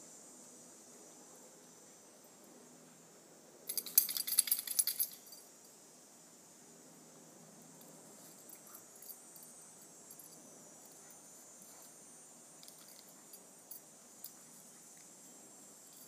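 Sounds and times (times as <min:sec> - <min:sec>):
high-pitched insect chorus: 0:00.0 - 0:16.0.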